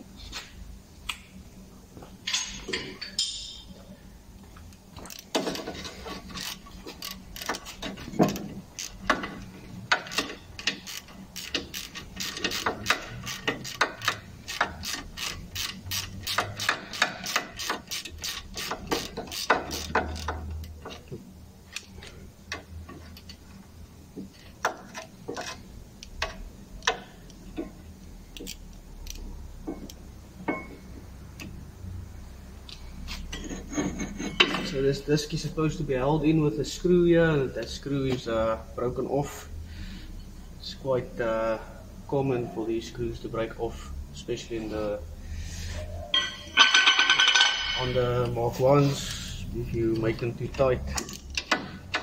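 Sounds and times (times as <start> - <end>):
hand ratchet clicking: 5.0 - 21.1, 28.3 - 29.3, 49.9 - 52.0.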